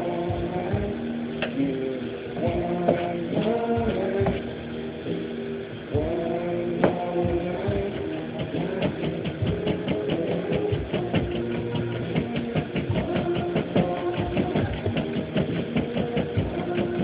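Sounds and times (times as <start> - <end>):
background music: 0.0 - 17.0
knife chopping on plastic board: 8.0 - 17.0.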